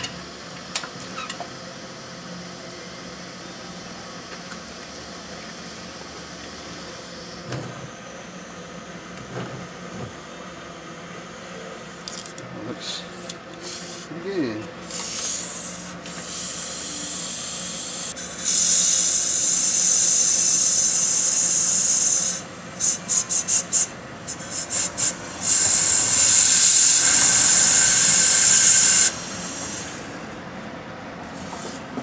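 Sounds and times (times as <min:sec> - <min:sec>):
compressed air blow gun hissing: 0:13.6 - 0:14.2, 0:14.8 - 0:30.4.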